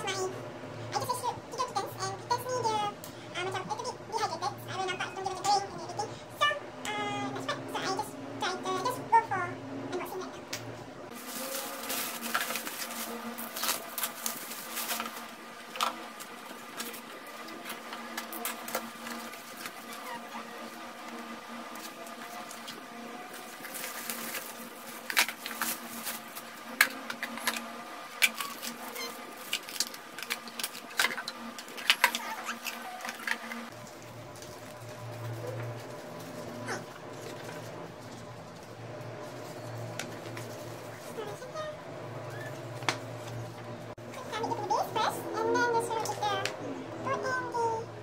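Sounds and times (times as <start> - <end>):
faint steady hum: 0.0 - 48.0
packaging rustling and crinkling: 11.1 - 20.8, 21.7 - 41.3.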